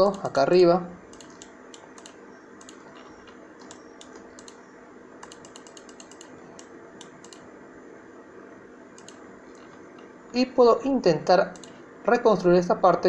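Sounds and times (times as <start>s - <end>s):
low steady hum: 0.0s - 13.0s
mouse and keyboard clicking: 1.1s - 4.6s, 5.2s - 7.5s, 9.0s - 9.7s, 11.5s - 11.8s.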